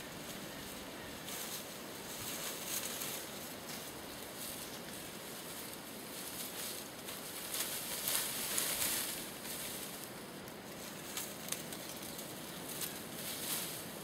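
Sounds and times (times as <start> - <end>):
leaves rustling and crackling: 0.0 - 14.0
twigs clicking: 10.4 - 13.8.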